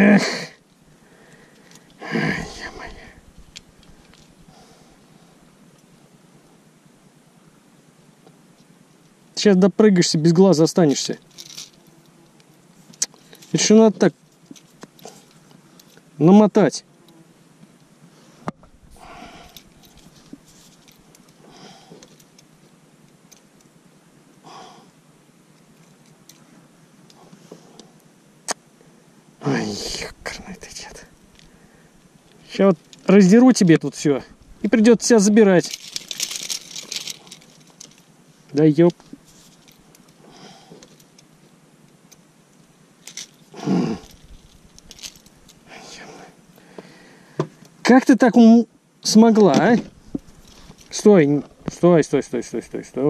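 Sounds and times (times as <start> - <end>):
man grunting: 0.0 - 0.6, 2.0 - 3.2, 43.6 - 44.1
man sighing: 0.0 - 3.2, 19.0 - 19.6, 43.6 - 44.2
rustling of fishing gear: 0.6 - 2.0, 2.6 - 5.8, 10.8 - 16.2, 18.1 - 23.6, 34.3 - 45.7, 49.5 - 51.9.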